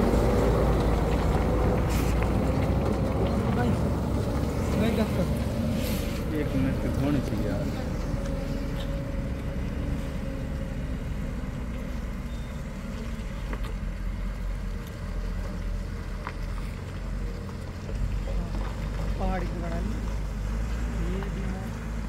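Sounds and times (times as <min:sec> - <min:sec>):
truck diesel engine rumbling: 0:00.0 - 0:22.0.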